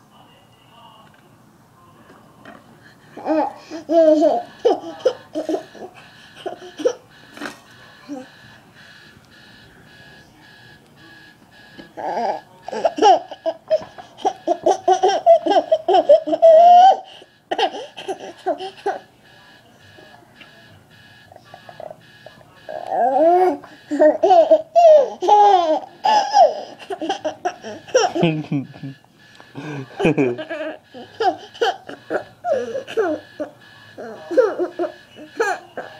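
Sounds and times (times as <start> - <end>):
baby laughing: 3.2 - 7.0, 12.1 - 19.0, 23.2 - 28.2, 29.9 - 33.2, 34.2 - 35.9
electronic beeping: 3.2 - 35.9.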